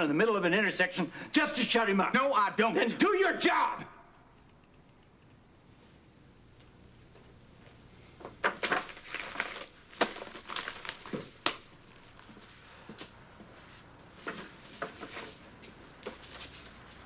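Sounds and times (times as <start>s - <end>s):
papers rustling and crinkling: 8.2s - 12.6s, 14.1s - 17.0s.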